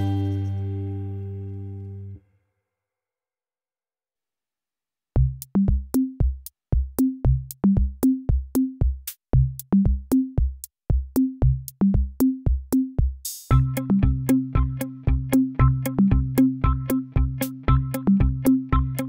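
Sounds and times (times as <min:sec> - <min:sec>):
electronic drum-machine beat: 0:05.2 - 0:19.0.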